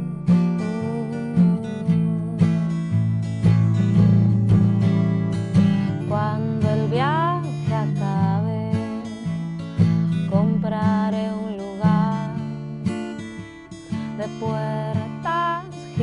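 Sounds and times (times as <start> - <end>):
woman singing: 0.0 - 3.0, 4.8 - 16.0
acoustic guitar plucked chords: 0.0 - 16.0.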